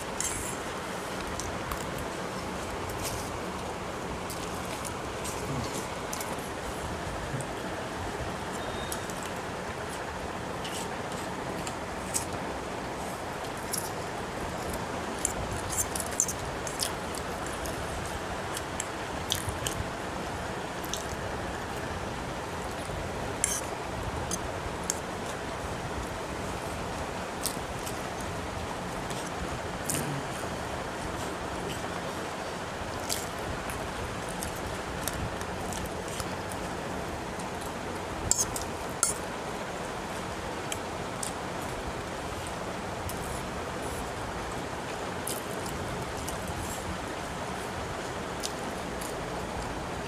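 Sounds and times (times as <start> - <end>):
steady background hiss: 0.0 - 50.0
person chewing and slurping noodles: 0.1 - 3.7, 29.1 - 31.8.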